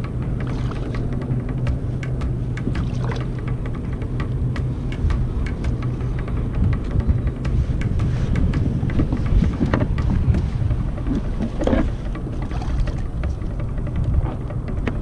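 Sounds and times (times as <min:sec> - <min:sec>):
wind buffeting microphone: 0:00.0 - 0:15.0
drips and small splashes: 0:00.4 - 0:01.1, 0:02.6 - 0:03.5
water sloshing against kayak hull: 0:00.4 - 0:06.1, 0:07.7 - 0:14.6.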